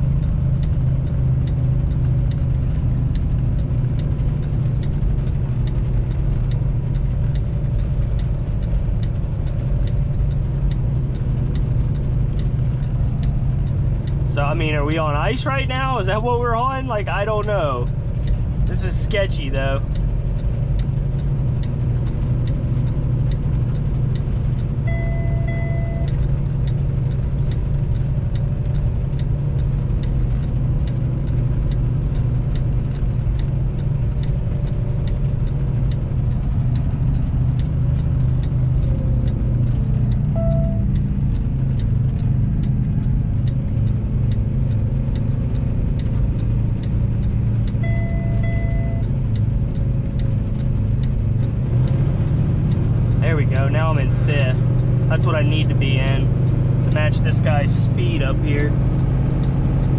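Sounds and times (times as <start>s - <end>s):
diesel truck engine running: 0.0s - 59.9s
light regular ticking: 0.0s - 59.9s
short electronic beep: 24.8s - 26.2s, 40.3s - 41.0s, 47.8s - 49.1s.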